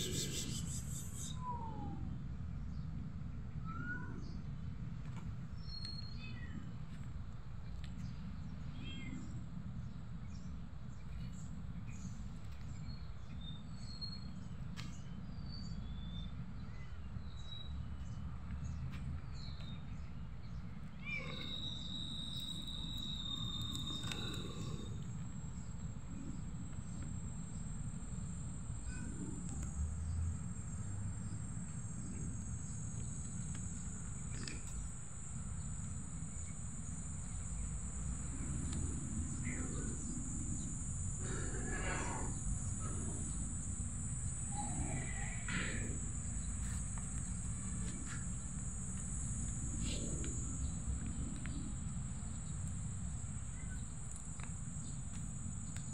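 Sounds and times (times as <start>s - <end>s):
high insect buzz: 0.0s - 1.4s, 21.1s - 55.9s
bird chirps: 0.0s - 1.9s, 21.0s - 25.8s
steady low rumble: 4.2s - 55.9s.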